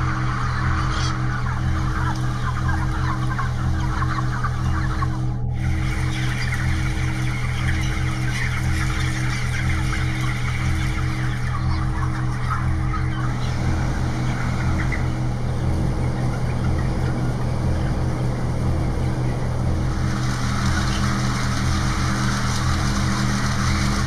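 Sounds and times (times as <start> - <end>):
chickens cheeping: 0.0 - 24.0
low steady drone: 0.0 - 24.0.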